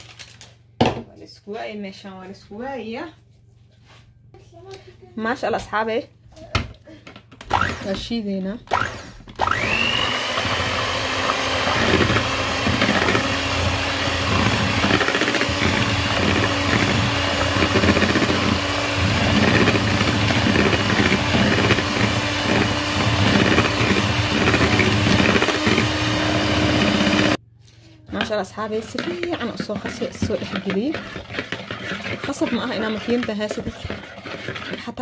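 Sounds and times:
electric hand mixer whisking eggs: 7.4 - 8.1, 8.7 - 27.4, 28.6 - 35.0.

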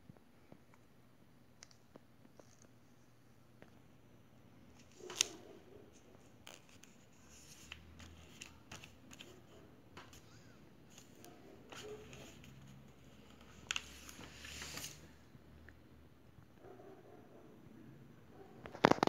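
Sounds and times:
paper rustling: 4.7 - 10.2, 10.9 - 15.0.

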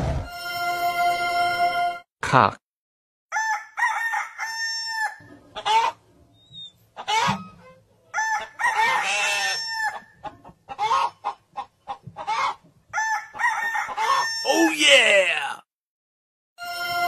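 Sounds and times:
rooster crowing: 3.3 - 5.8, 8.1 - 10.1, 13.0 - 14.6
hens clucking: 5.2 - 7.6, 8.3 - 12.9.

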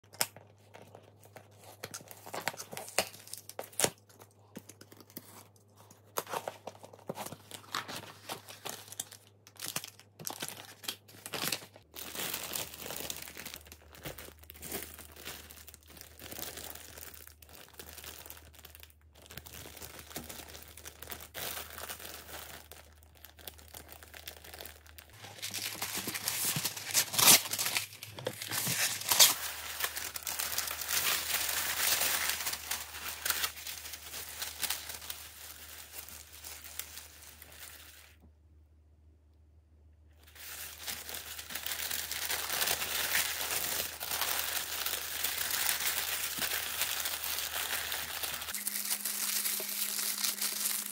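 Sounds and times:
packaging crinkling and tearing: 0.1 - 38.2, 40.2 - 50.9.

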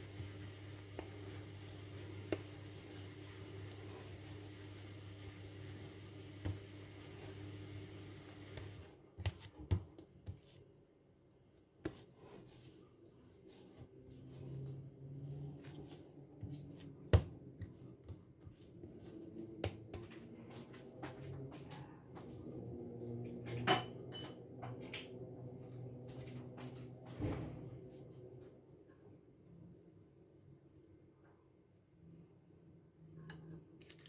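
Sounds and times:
dough kneaded by hand: 0.0 - 23.5
low steady hum: 0.0 - 26.5.

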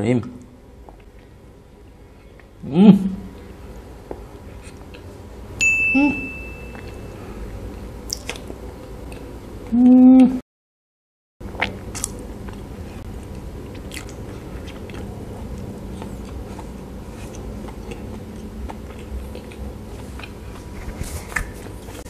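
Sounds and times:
chewing soft bun: 3.3 - 5.3, 6.7 - 9.8, 11.4 - 22.0.

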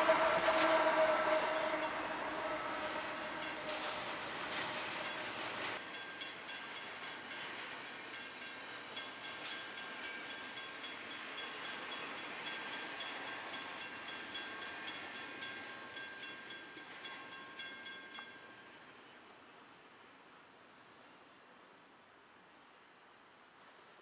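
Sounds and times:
crossing bell ringing: 0.0 - 19.2
freight train rolling past: 0.0 - 19.8.

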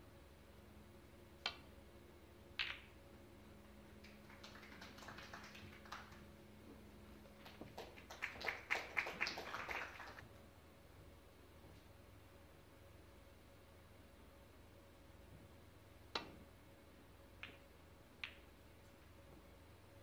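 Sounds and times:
snooker balls clicking: 1.4 - 1.7, 2.5 - 9.4, 17.4 - 18.9
audience clapping: 3.6 - 6.4, 7.3 - 10.2.

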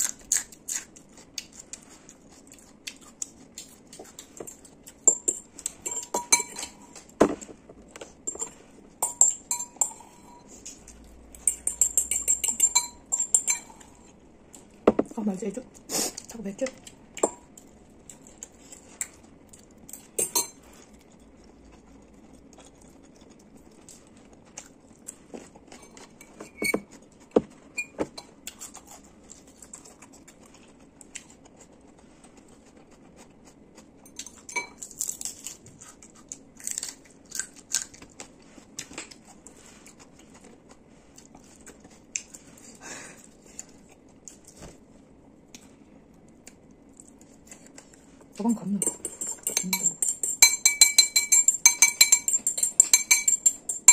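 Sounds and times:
soft eating noises: 0.0 - 53.9
fork scraping ceramic bowl: 48.8 - 53.9.

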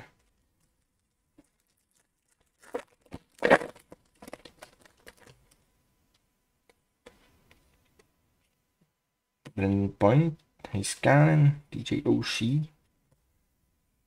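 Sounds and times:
wrapper crinkling and rustling: 0.2 - 5.6
foil wrapper ripping: 1.4 - 5.4.

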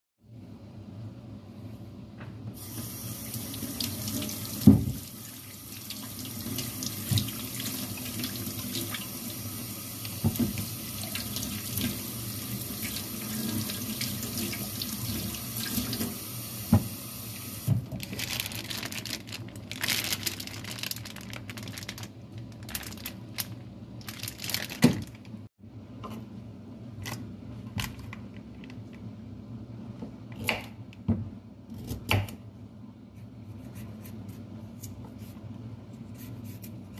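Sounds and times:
knife scraping a carrot: 33.2 - 35.4, 36.0 - 36.9.

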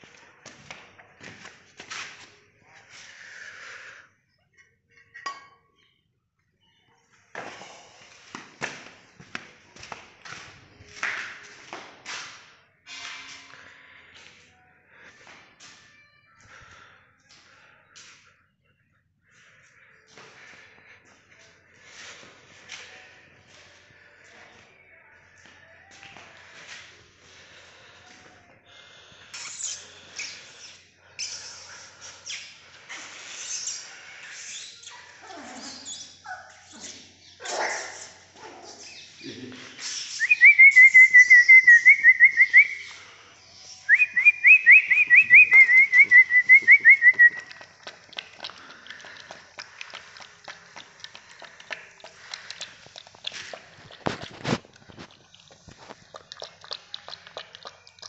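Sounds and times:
trilled whistle: 40.0 - 43.0, 43.9 - 47.5
puppy lapping from steel bowl: 47.3 - 58.0.

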